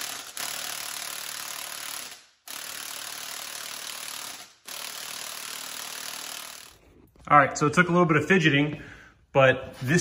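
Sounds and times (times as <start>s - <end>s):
impact wrench hammering: 0.0s - 6.8s.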